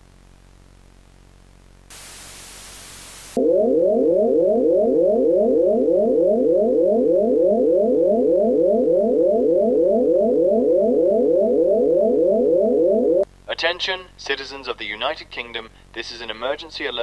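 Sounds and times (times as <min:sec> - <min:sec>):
rising electronic alert tone: 0:03.4 - 0:13.2.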